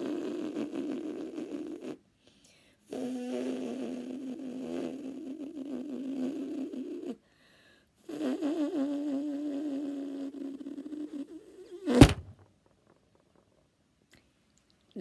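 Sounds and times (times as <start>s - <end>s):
woman buzzing lips: 0.0s - 2.0s, 2.9s - 7.2s, 8.0s - 12.3s.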